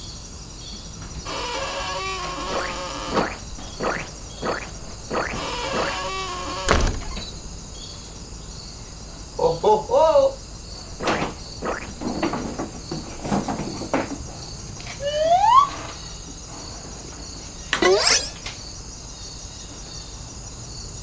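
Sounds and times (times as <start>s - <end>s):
cricket chirping: 0.0s - 21.0s
loud thump: 6.6s - 7.4s, 11.0s - 12.6s.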